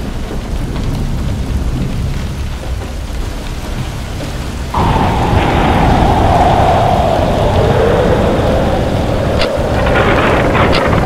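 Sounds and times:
rain hiss: 0:00.0 - 0:11.0
wind rumbling: 0:00.0 - 0:11.0.

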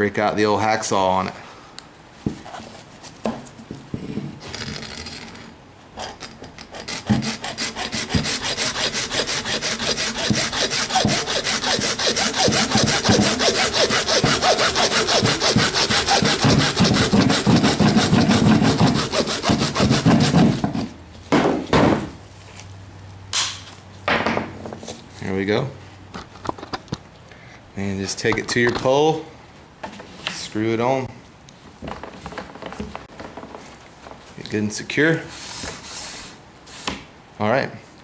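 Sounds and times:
hacksaw cutting plastic: 0:04.5 - 0:20.9.

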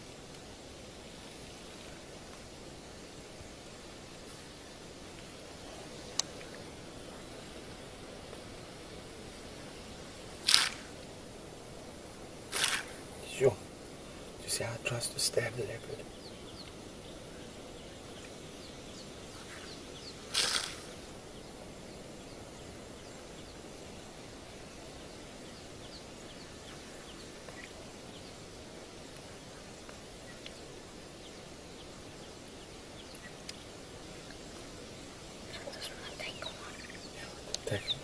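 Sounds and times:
outdoor background hiss: 0:00.0 - 0:38.0
faint high chirps: 0:14.9 - 0:38.0.

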